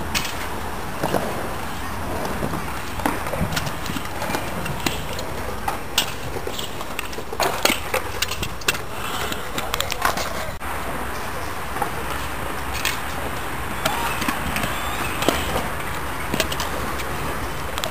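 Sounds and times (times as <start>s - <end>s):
scooter wheels rolling on concrete: 0.0s - 17.9s.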